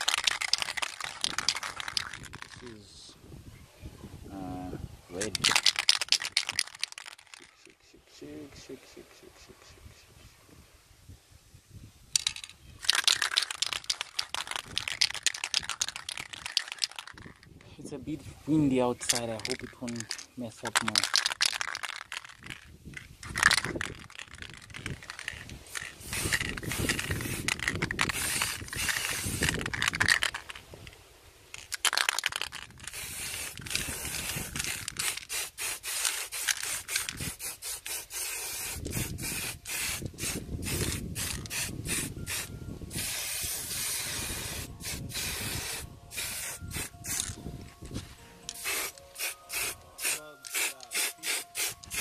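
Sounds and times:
wind rumble on microphone: 1.2 - 5.5, 9.8 - 12.8, 17.1 - 18.7, 22.3 - 31.0, 32.4 - 35.2, 36.9 - 37.5, 38.6 - 48.2
spray can hissing bursts: 24.4 - 30.4, 32.8 - 47.3, 48.5 - 52.0.

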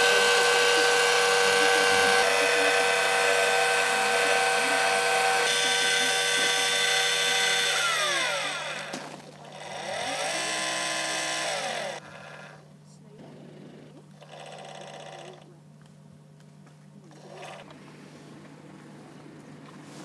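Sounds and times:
telescope mount motors whining: 0.0 - 12.8, 17.0 - 18.7.

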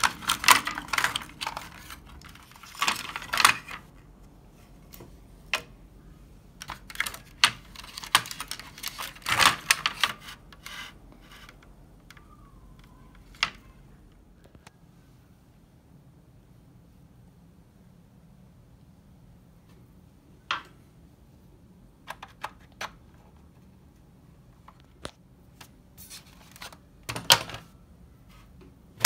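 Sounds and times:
plastic clicks and clatter: 0.0 - 3.9, 6.6 - 13.7, 22.0 - 23.6, 26.4 - 27.7.

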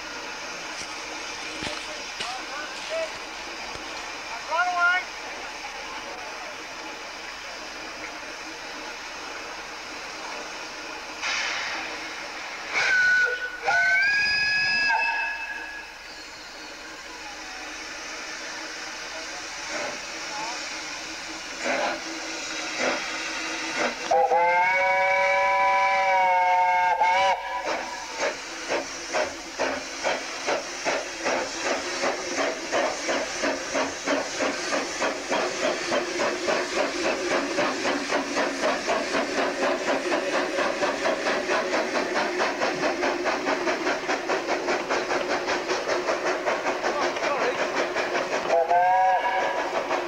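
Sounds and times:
steam locomotive exhaust beats: 0.0 - 50.0
steam locomotive chime whistle: 12.7 - 17.3, 23.3 - 28.2, 48.5 - 49.8.

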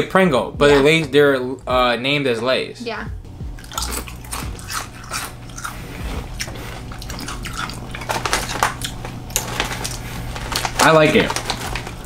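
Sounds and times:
crunching potato chips: 3.7 - 12.0.

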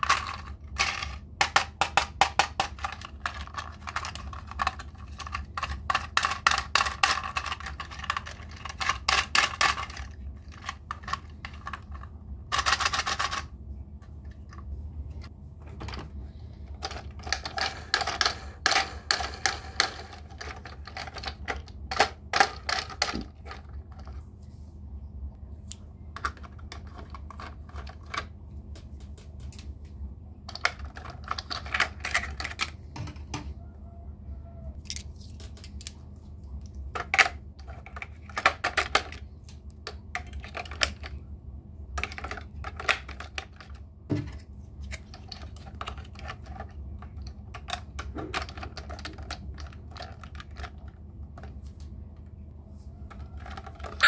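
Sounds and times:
toy trains clicking and clattering: 0.0 - 13.5, 16.8 - 23.8
steady low hum: 0.0 - 54.0.

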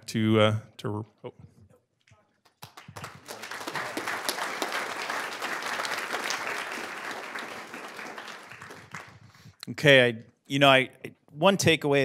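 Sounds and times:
audience applause: 2.6 - 9.3.

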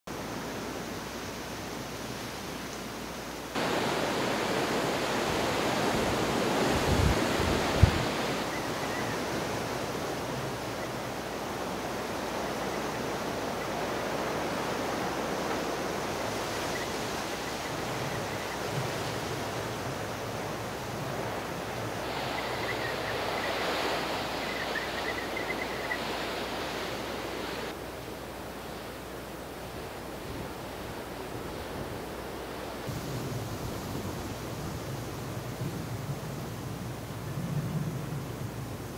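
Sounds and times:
strong wind through trees: 0.1 - 38.9
wind buffeting microphone: 3.6 - 27.7.

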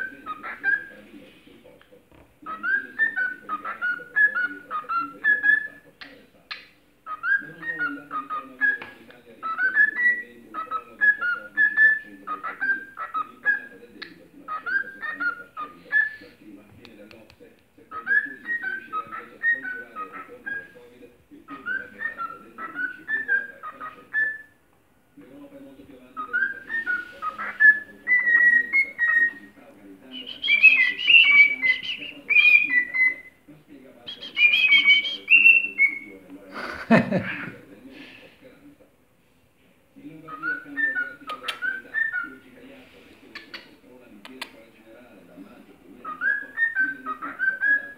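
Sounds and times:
cockatiel whistling: 0.0 - 0.9, 2.4 - 5.8, 7.1 - 13.8, 17.9 - 20.8, 21.5 - 24.6, 26.2 - 29.5, 30.1 - 33.3, 34.1 - 36.1, 40.3 - 42.4, 46.0 - 47.9.

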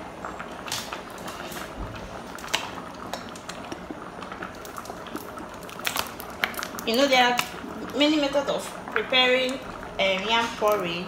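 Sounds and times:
porridge bubbling in a pot: 0.0 - 11.0
small clicks and pops: 2.4 - 7.6.

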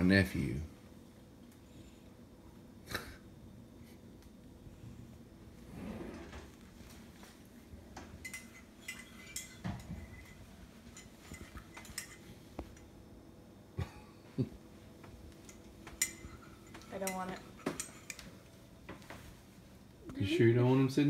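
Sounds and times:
dishes and cutlery clinking: 7.9 - 12.9, 15.0 - 19.3.

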